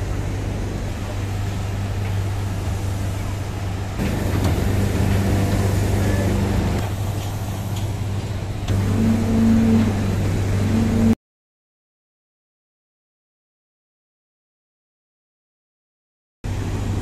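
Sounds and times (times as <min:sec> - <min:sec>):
heavy machinery droning: 0:00.0 - 0:11.2.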